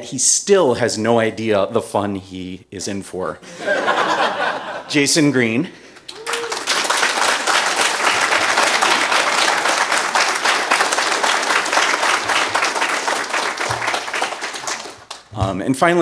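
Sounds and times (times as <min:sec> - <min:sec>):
audience applauding: 0:06.0 - 0:15.4.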